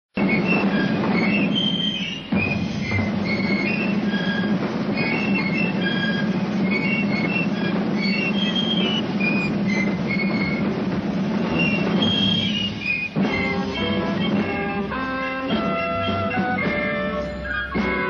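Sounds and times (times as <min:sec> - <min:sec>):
continuous drumming: 0:00.1 - 0:18.0
piccolos playing a march: 0:00.2 - 0:18.0.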